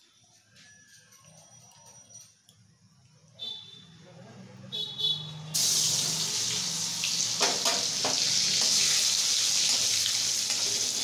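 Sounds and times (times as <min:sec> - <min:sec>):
food sizzling in hot oil: 0:05.5 - 0:11.0.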